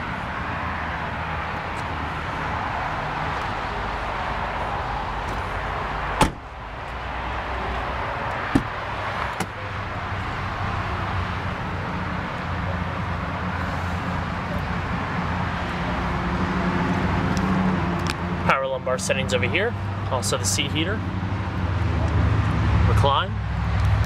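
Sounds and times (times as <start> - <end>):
car door clicks: 6.2 - 6.5, 8.5 - 9.6.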